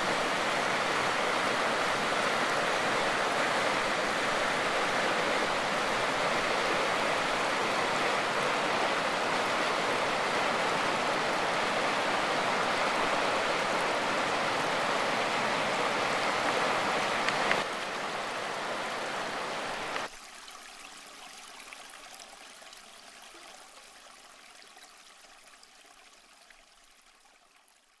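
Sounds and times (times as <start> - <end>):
river rushing over rapids: 0.0 - 20.1.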